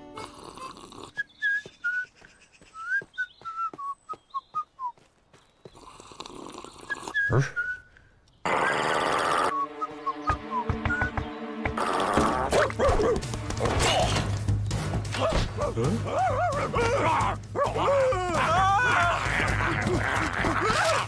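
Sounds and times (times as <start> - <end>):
man whistling a jaunty tune: 1.2 - 2.2, 2.8 - 5.0, 6.9 - 8.0, 9.5 - 11.2
light footsteps: 1.6 - 6.0.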